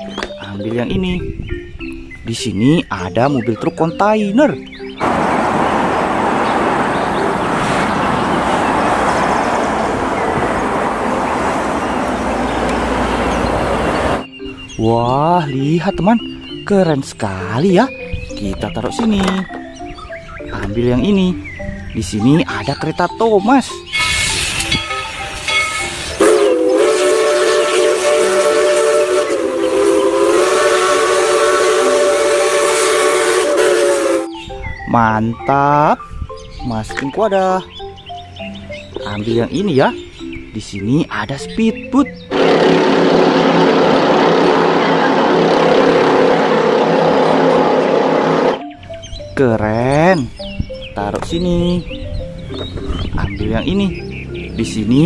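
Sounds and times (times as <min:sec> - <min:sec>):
steam hissing: 0:05.0 - 0:14.3, 0:24.0 - 0:34.3, 0:42.3 - 0:48.6
steam locomotive whistle: 0:05.0 - 0:14.3, 0:23.9 - 0:34.4, 0:42.3 - 0:48.6
truck engine and road noise: 0:05.0 - 0:14.3.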